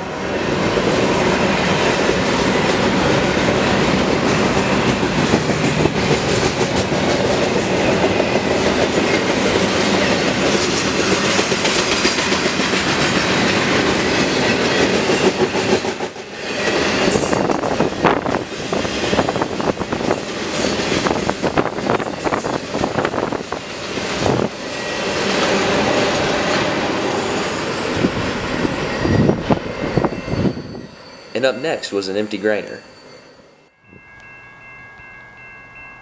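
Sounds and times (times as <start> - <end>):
freight train rolling past: 0.0 - 36.0
wheels clacking over rail joints: 1.3 - 16.1.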